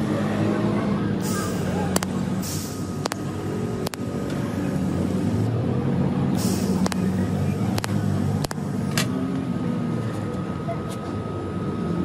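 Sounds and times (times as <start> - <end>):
short hiss: 2.4 - 3.0, 6.4 - 7.1
sharp clicks: 3.0 - 4.4, 6.8 - 7.1, 7.7 - 8.6.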